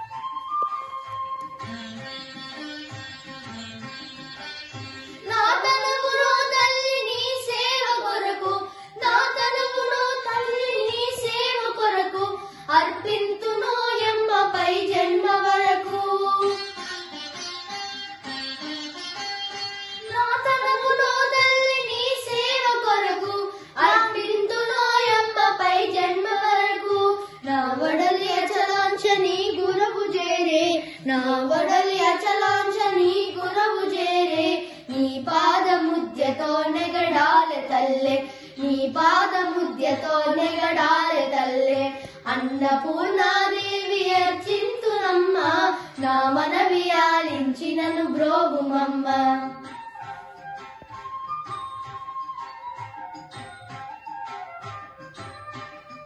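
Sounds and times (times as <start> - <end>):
boys singing a devotional song: 5.2 - 16.6, 20.2 - 49.6.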